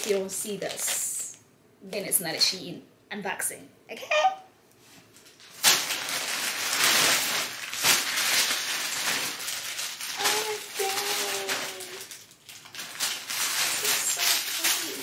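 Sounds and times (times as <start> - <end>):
plastic mailer bag crinkling: 0.0 - 1.3, 5.2 - 15.0.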